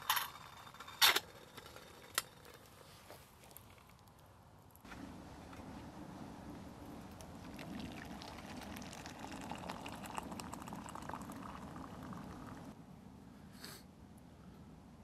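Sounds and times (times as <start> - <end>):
water pouring into a cup: 7.0 - 12.7.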